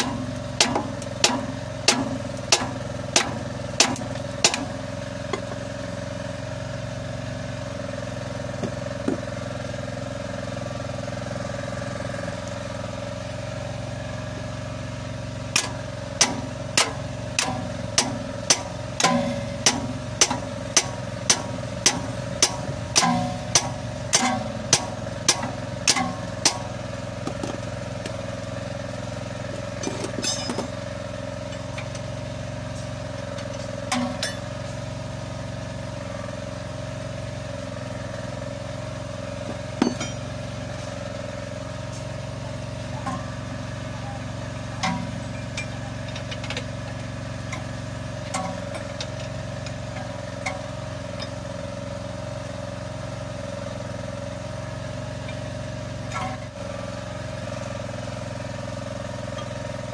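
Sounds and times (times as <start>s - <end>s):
engine drone: 0.0s - 59.9s
wrench clinking on metal: 30.0s - 30.7s, 39.8s - 40.3s.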